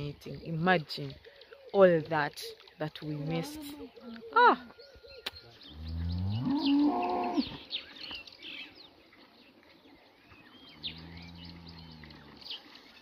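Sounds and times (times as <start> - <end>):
birds chirping: 0.0 - 13.0
cattle mooing: 5.7 - 7.6.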